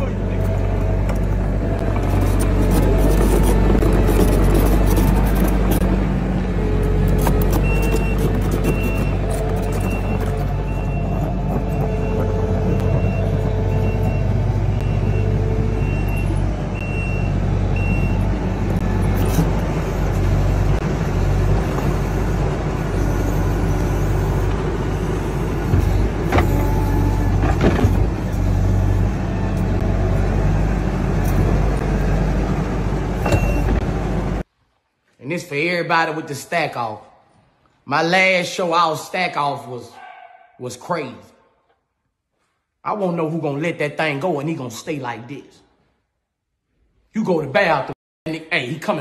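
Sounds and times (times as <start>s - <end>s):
diesel engine running: 0.0s - 34.4s
bucket pushing dirt: 1.7s - 6.1s, 6.7s - 14.4s
reversing alarm beeping: 7.5s - 27.4s.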